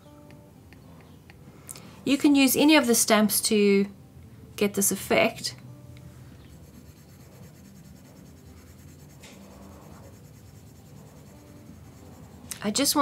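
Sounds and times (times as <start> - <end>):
low steady hum: 3.1 - 13.0.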